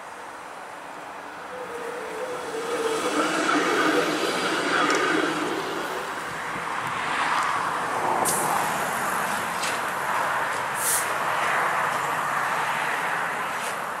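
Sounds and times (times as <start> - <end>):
streetcar rolling on rails: 0.0 - 14.0
brief high hisses: 10.8 - 11.1.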